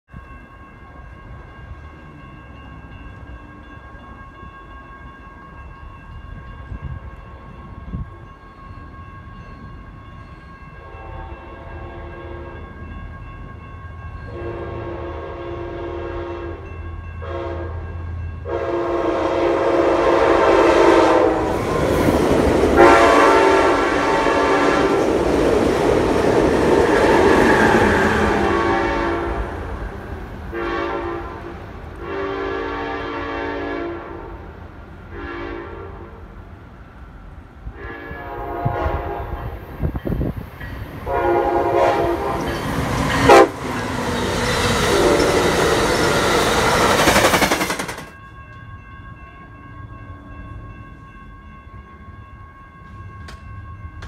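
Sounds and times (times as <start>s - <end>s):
train rumbling: 0.1s - 54.0s
locomotive horn blasts: 10.8s - 12.6s, 14.3s - 21.6s, 22.8s - 25.1s, 26.9s - 29.6s, 30.5s - 34.5s, 35.1s - 36.2s, 37.7s - 39.6s, 41.0s - 42.6s, 43.3s - 43.7s, 44.8s - 45.8s.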